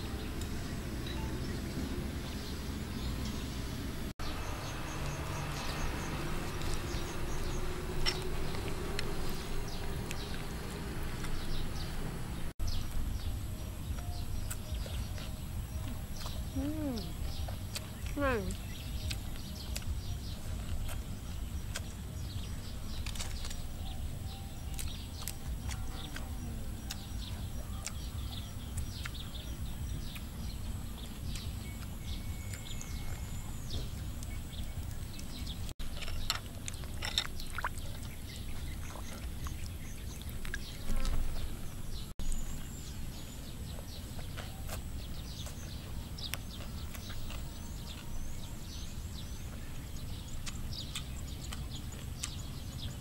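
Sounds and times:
low rumble: 0.0s - 35.8s.

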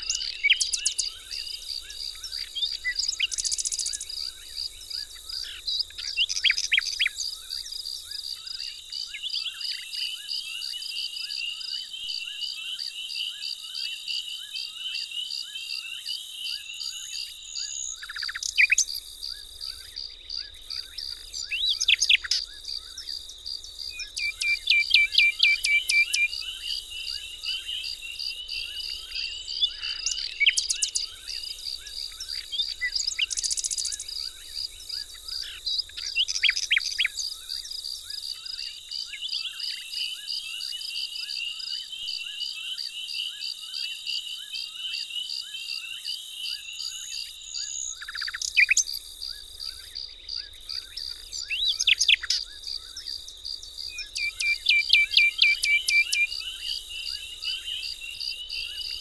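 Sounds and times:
starlings calling: 0.0s - 7.7s, 20.4s - 37.6s, 50.3s - 53.2s, 54.0s - 59.0s.

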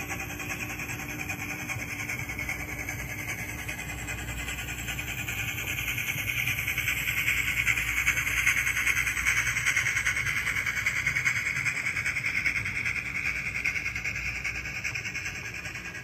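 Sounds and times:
model train steam chuffs from speaker: 0.0s - 16.0s.

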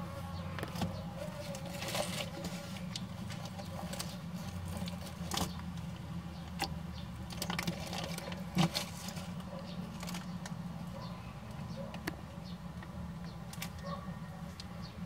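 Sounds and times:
rustling in dry leaves: 0.0s - 5.7s, 7.5s - 10.4s.

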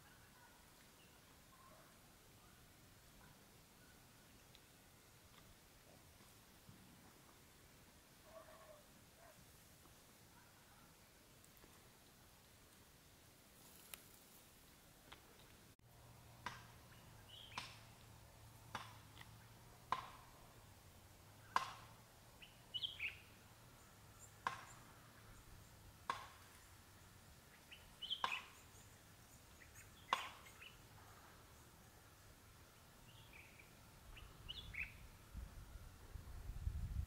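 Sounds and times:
sharp clicking bird call: 17.3s - 17.8s, 21.4s - 21.9s, 28.0s - 28.6s, 29.7s - 30.8s.

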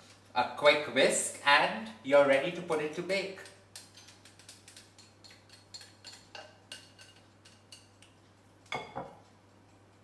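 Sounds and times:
whisk clinking against bowl: 3.4s - 8.1s.

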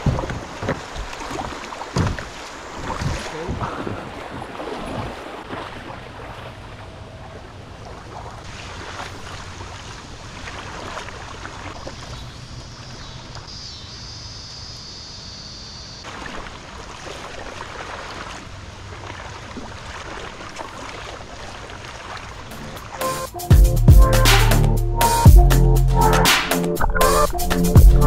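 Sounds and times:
wind rumble on microphone: 0.0s - 5.2s
creek water rushing: 0.0s - 13.5s, 16.0s - 23.5s.

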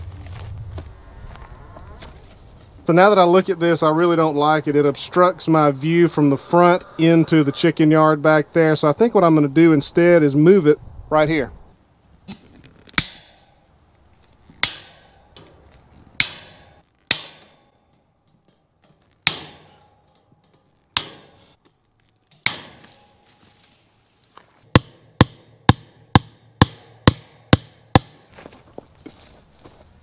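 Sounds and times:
hammer striking wooden post: 13.0s - 13.5s, 14.6s - 15.2s, 16.2s - 20.3s, 20.9s - 21.5s, 22.4s - 23.1s, 24.7s - 28.3s.

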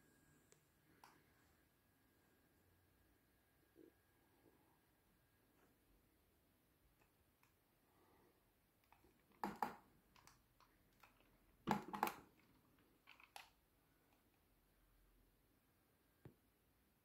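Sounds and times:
plastic clicks and rattles: 8.8s - 14.3s.

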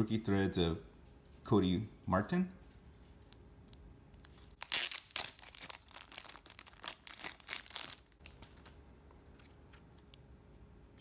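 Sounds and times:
plastic bag crinkling: 4.2s - 8.8s.

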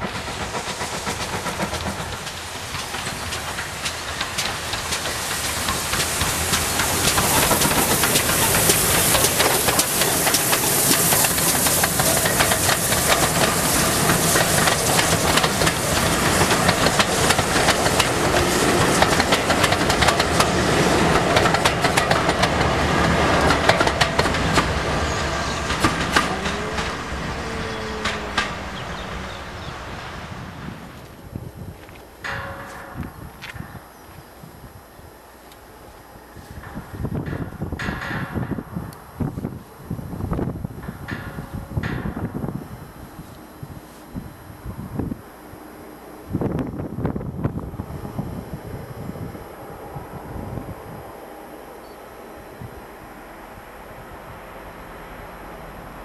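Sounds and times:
train wheels clicking over rail joints: 0.0s - 30.2s, 30.9s - 42.7s
steam hissing: 0.0s - 32.1s
steam locomotive passing: 0.0s - 56.0s.

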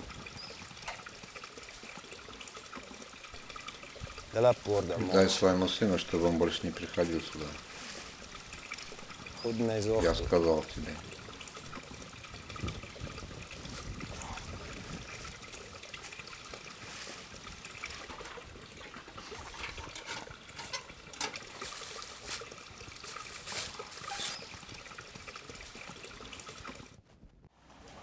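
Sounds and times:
water trickling: 0.0s - 27.0s
footsteps in dry leaves: 21.5s - 24.4s.

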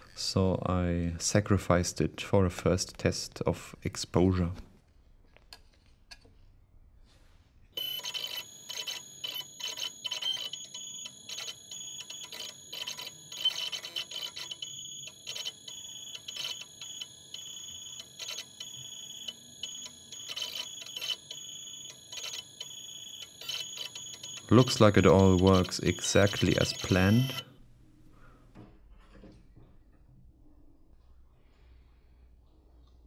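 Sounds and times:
stepper motors whining: 7.8s - 27.4s.

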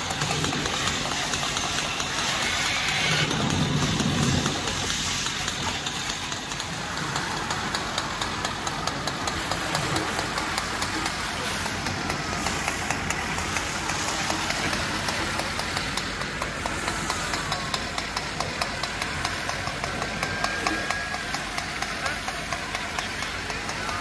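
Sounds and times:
diesel engine running: 0.0s - 24.0s
hiss of water and steam: 0.0s - 24.0s.

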